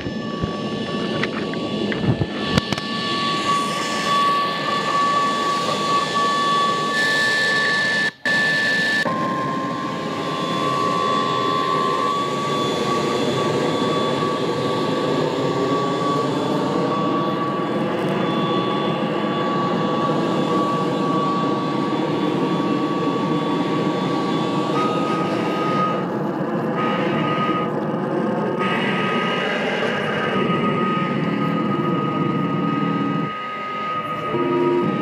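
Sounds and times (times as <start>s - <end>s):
faint high tone: 30.3s - 35.0s.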